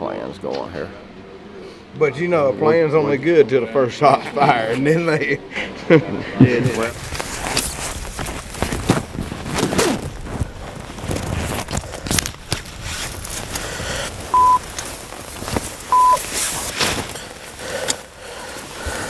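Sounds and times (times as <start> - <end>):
fabric and brush rustling: 6.6 - 19.0
short electronic beeps: 14.3 - 14.6, 15.9 - 16.2.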